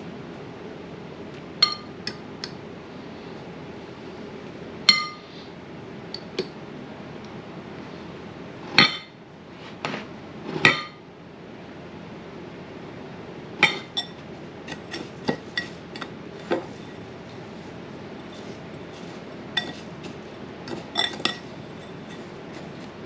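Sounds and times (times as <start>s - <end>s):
fork clinking against ceramic bowl: 1.6s - 1.9s, 13.6s - 16.1s, 19.6s - 22.9s.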